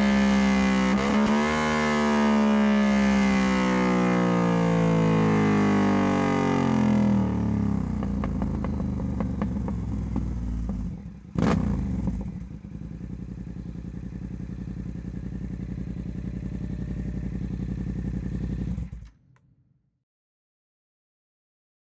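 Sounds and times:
motorcycle engine revving and idling: 0.0s - 19.4s
exhaust pops: 7.9s - 11.7s.

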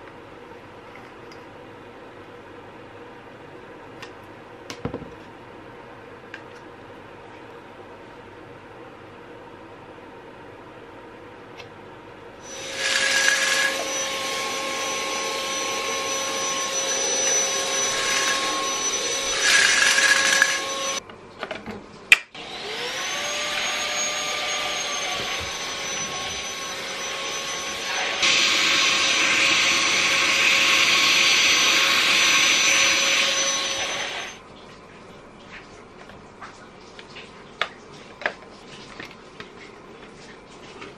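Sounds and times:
vacuum cleaner whine: 12.4s - 21.0s, 22.4s - 34.4s.

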